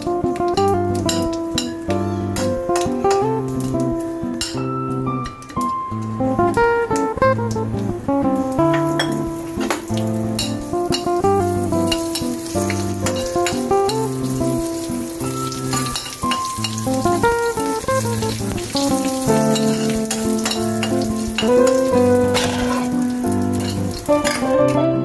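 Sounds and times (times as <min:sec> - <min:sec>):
spices sizzling in hot oil: 0:00.0 - 0:24.8
spoon stirring in pan: 0:18.6 - 0:24.4.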